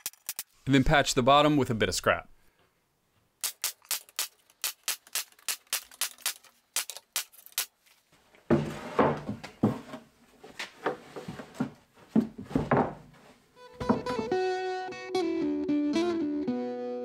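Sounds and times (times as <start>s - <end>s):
guitar music: 13.6s - 17.0s.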